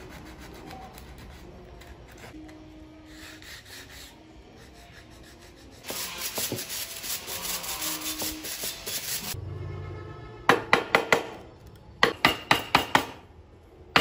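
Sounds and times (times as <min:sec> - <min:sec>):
sandpaper rubbing on wood: 0:00.0 - 0:02.4, 0:03.0 - 0:09.4
bristle brush sweeping wood: 0:05.2 - 0:09.4.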